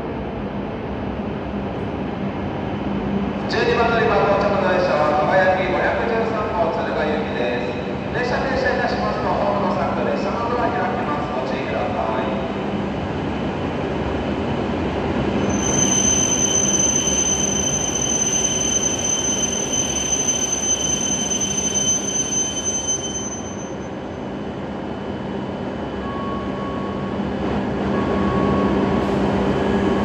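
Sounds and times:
high-pitched squeal: 15.4 - 23.9.

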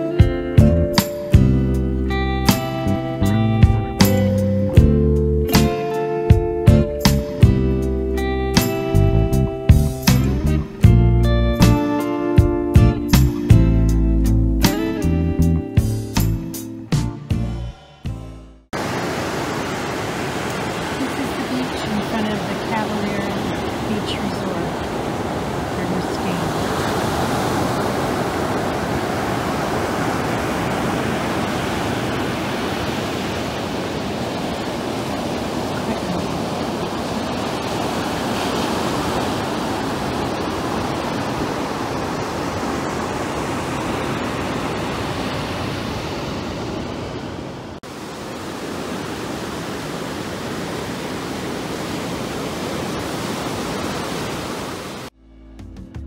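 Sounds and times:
ocean waves on sandy beach: 18.8 - 55.2.

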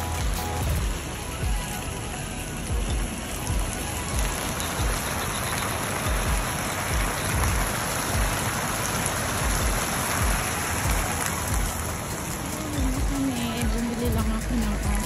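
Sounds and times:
fountain splashing into pool: 0.0 - 15.0
irregular low bumps: 2.7 - 15.0.

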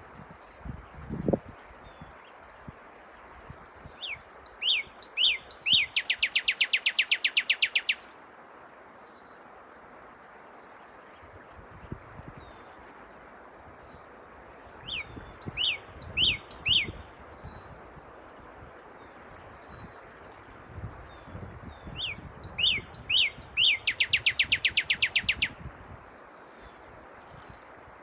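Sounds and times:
cardinal singing whistles: 4.5 - 8.0, 14.9 - 17.0, 22.0 - 25.6.

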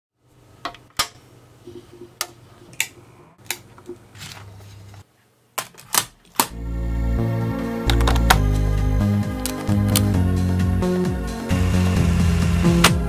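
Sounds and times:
plastic cassette case handled: 7.8 - 8.7, 9.3 - 10.2.

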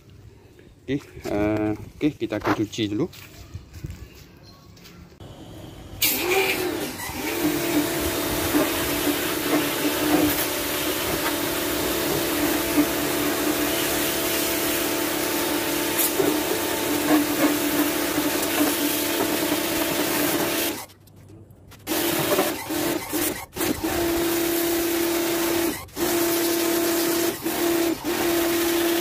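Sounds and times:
pressure washer motor humming: 6.0 - 20.9, 21.9 - 29.0
water jet spraying into metal: 6.0 - 20.9, 21.9 - 29.0.

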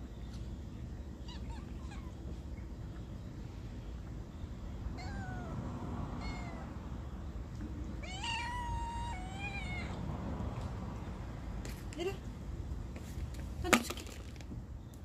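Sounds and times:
cat meowing: 5.0 - 5.6, 6.2 - 6.7, 8.0 - 10.1.

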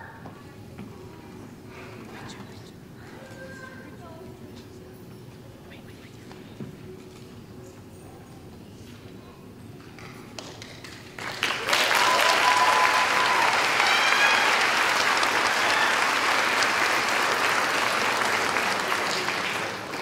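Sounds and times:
audience applauding: 10.0 - 20.0
short cheer: 11.6 - 16.7.

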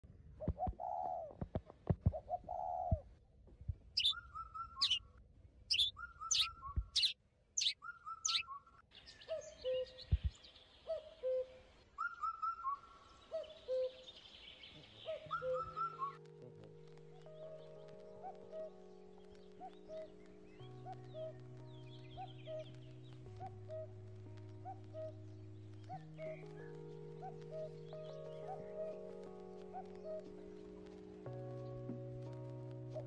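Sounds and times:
birds chirping: 4.0 - 5.0, 5.7 - 8.5.

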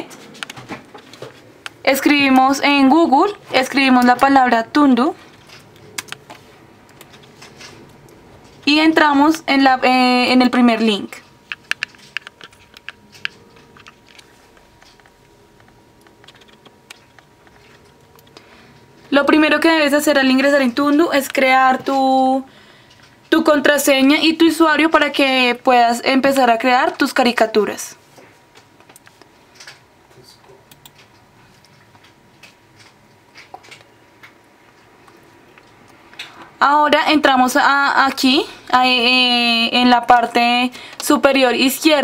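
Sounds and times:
faint steady hum: 0.0 - 42.0
laptop keys clicking: 5.4 - 7.8, 11.4 - 18.4, 30.7 - 36.3.

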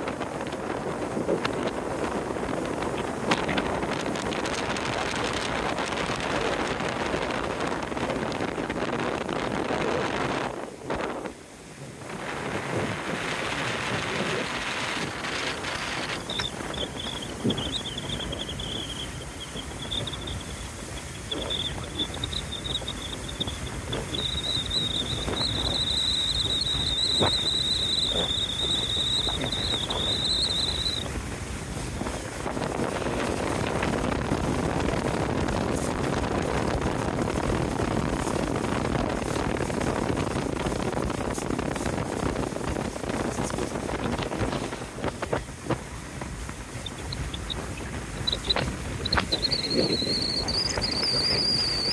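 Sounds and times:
water rushing past boat: 0.0 - 51.9
wind buffeting microphone: 0.0 - 51.9
high wavering whine: 13.9 - 31.2, 46.6 - 51.9.

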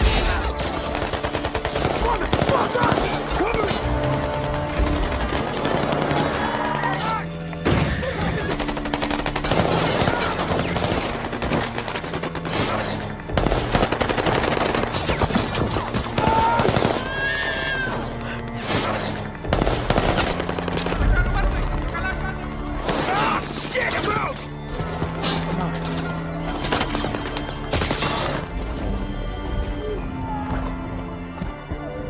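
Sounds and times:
film music score: 0.0 - 32.0.

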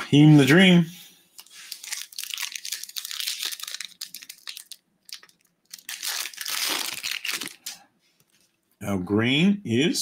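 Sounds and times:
foil wrapper crinkling and tearing: 1.4 - 7.8.

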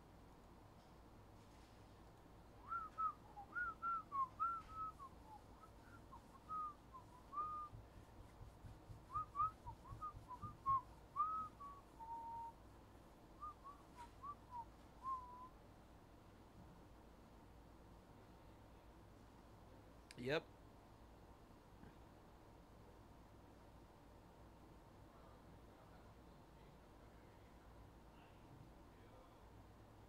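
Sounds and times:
person whistling a tune: 2.6 - 7.8, 9.1 - 12.5, 13.4 - 15.5.

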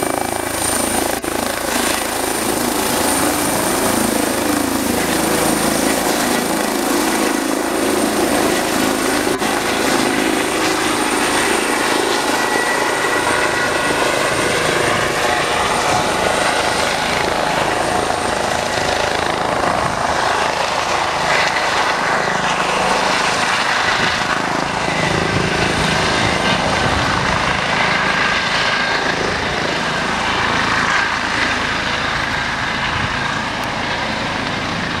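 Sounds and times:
helicopter rotor and engines: 0.0 - 35.0
high turbine whine: 0.0 - 35.0.

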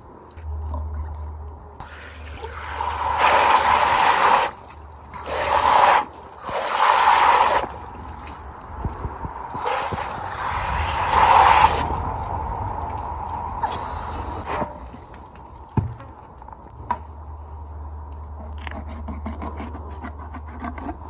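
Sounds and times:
hose spray hissing onto fish: 1.8 - 4.6, 5.2 - 7.7, 9.6 - 11.9, 13.6 - 14.6.

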